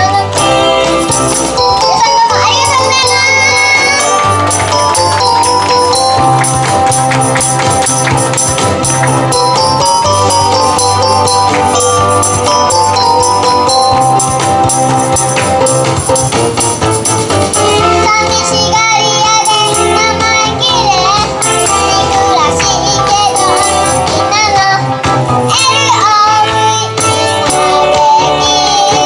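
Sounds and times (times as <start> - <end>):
upbeat pop music over speakers: 0.0 - 29.0
tambourine-like jingling: 1.0 - 18.0, 23.1 - 24.3
high wavering melody: 1.1 - 17.9.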